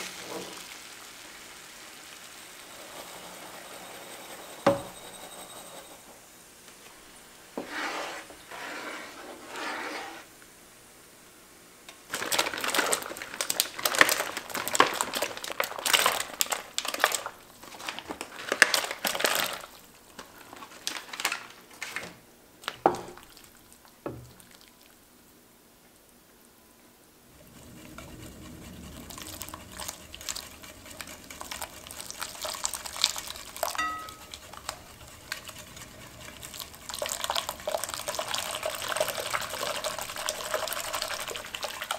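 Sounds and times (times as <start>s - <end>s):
crinkling and rustling: 11.9s - 23.5s
whisk beating eggs in glass bowl: 12.2s - 17.9s, 27.3s - 41.9s.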